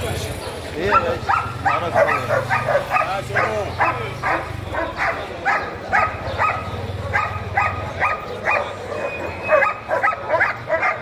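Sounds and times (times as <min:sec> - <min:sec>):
dog barking sharply: 0:00.4 - 0:11.0.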